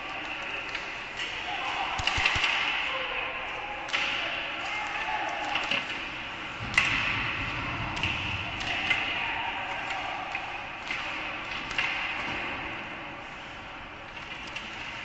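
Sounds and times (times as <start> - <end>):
hockey sticks and puck clacking: 0.0 - 15.0.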